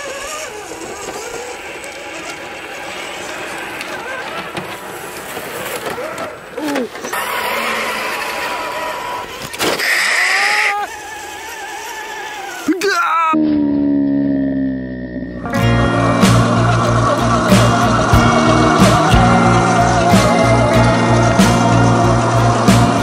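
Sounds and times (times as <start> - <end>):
simulated engine sound: 13.3 - 23.0.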